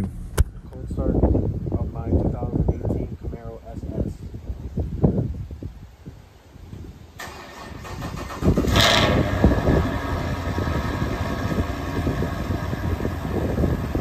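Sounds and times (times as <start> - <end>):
car engine revving and idling: 8.3 - 14.0.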